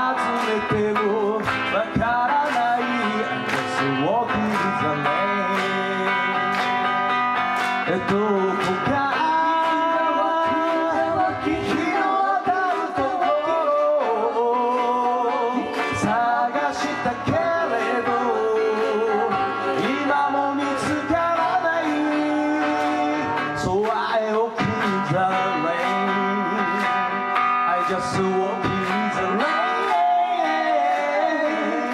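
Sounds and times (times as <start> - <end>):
drums: 0.0 - 9.8
guitar: 0.0 - 31.9.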